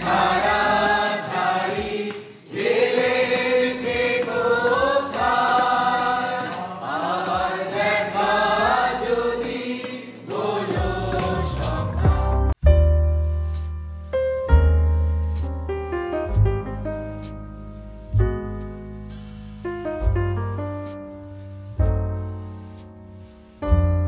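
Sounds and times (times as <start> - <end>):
group singing: 0.0 - 12.6.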